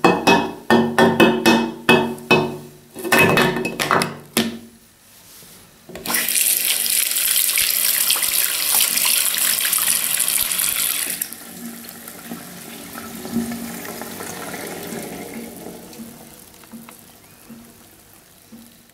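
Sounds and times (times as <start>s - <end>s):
tap water splashing into sink: 6.0s - 11.4s, 12.2s - 17.8s.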